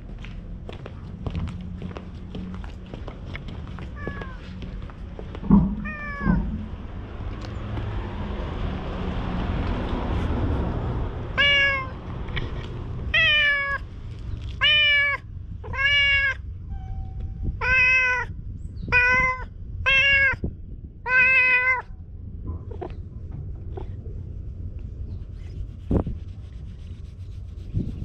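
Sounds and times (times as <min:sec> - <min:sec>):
low rumble: 0:00.0 - 0:11.4, 0:21.8 - 0:28.0
cat meowing: 0:04.0 - 0:04.6, 0:05.7 - 0:06.6, 0:11.4 - 0:12.0, 0:13.1 - 0:13.8, 0:14.6 - 0:22.0.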